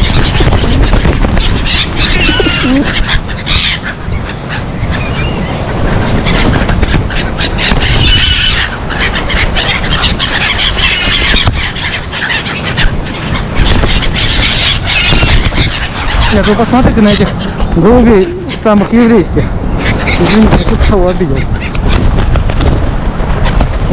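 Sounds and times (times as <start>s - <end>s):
gulls calling: 0.0s - 23.9s
wings flapping: 0.0s - 23.9s.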